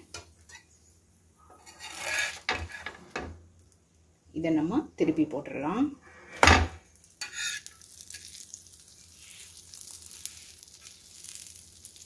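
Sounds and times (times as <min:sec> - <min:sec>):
faint sizzle of frying: 0:06.4 - 0:12.0.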